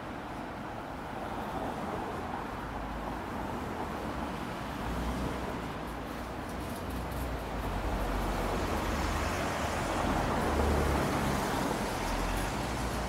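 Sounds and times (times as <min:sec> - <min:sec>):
cars passing: 0:07.6 - 0:13.0.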